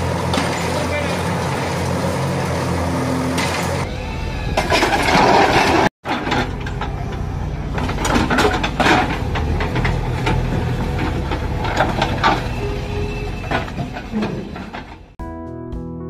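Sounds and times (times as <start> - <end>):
diesel engine running: 0.0 - 15.2
bricks and rubble clattering: 4.6 - 15.2.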